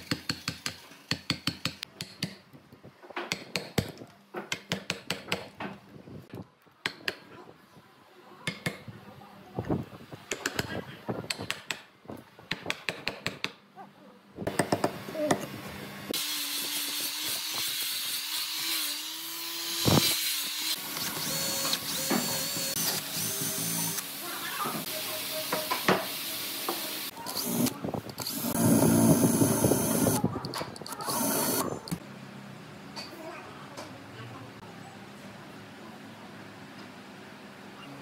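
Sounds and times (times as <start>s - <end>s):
cordless drill whining: 19.5s - 24.1s, 27.3s - 30.2s, 30.9s - 31.8s.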